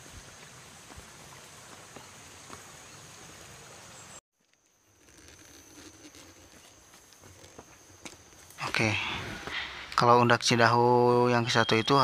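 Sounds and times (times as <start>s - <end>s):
footfalls on stone steps: 0.3s - 2.9s.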